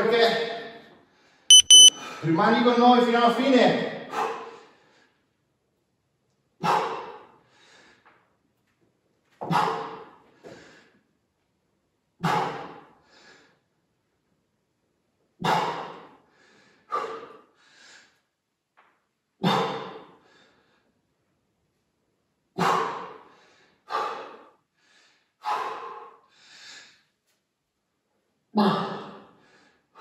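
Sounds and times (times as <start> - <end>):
person breathing hard: 15.6 - 18.2, 22.6 - 27.1.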